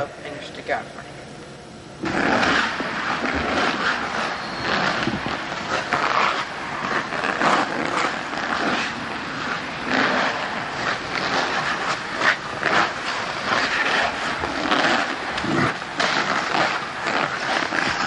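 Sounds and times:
skate blades scraping ice: 2.0 - 18.0.

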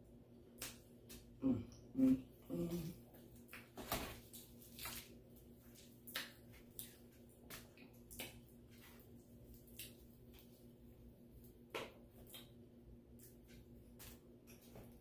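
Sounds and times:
chewing clicks and smacks: 12.2 - 13.4.

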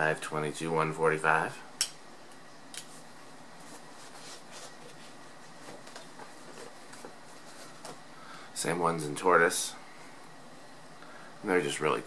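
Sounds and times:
room hiss: 0.0 - 12.0
rustling of eyeglasses handling: 2.8 - 8.1.

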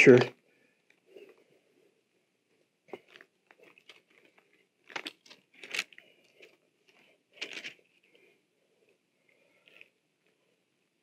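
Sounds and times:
thin pages rustling: 2.9 - 8.2.

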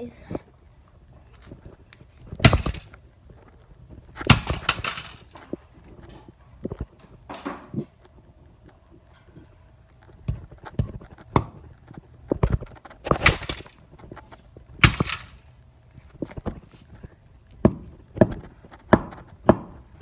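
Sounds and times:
hand tools clattering on concrete: 4.2 - 6.2, 13.1 - 13.8, 14.8 - 15.5.

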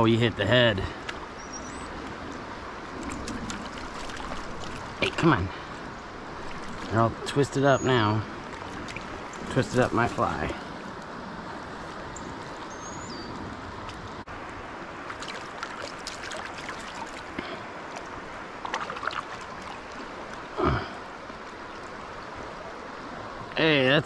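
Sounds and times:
stream water running: 0.0 - 24.0
small splashes and clicks: 3.0 - 5.2, 6.5 - 7.0, 8.4 - 10.2, 15.1 - 20.4.

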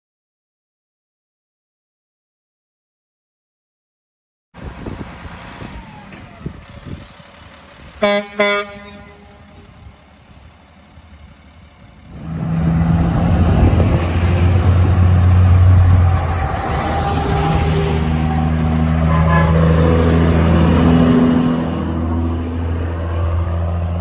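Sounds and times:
heavy truck engine drone: 4.6 - 24.0
traffic noise: 4.6 - 24.0
truck air horn blasts: 8.0 - 9.8, 19.0 - 20.2.

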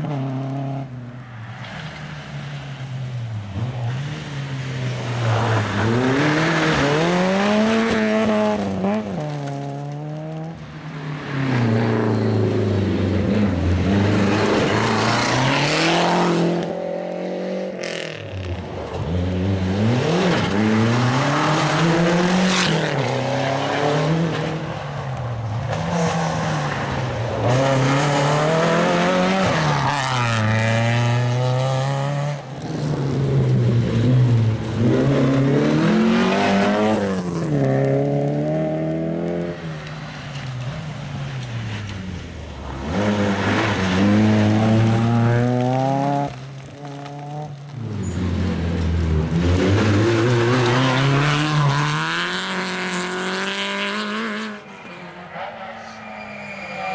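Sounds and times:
rally car engines revving: 0.0 - 56.9.

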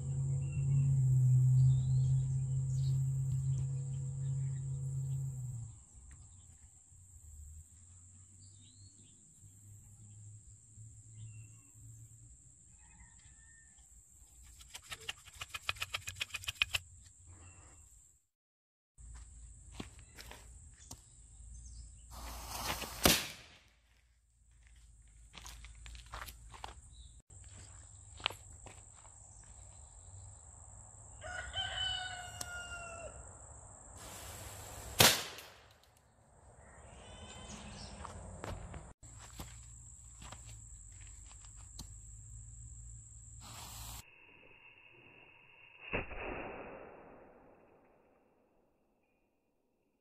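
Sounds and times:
pistol shot: 23.0 - 23.6, 35.0 - 35.6, 46.0 - 47.6.

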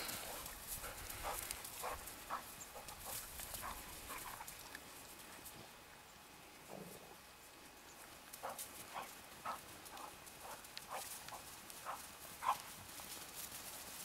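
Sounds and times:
puppies scuffling in snow: 8.1 - 14.0.

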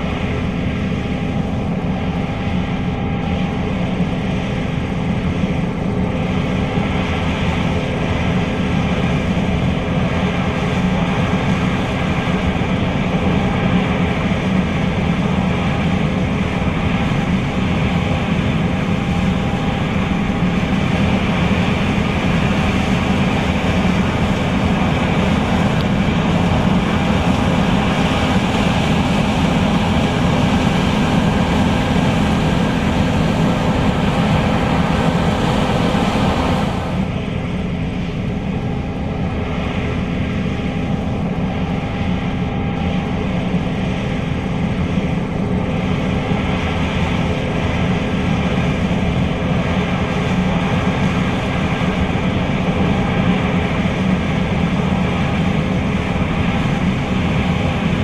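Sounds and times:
combine harvester droning: 10.9 - 47.5.

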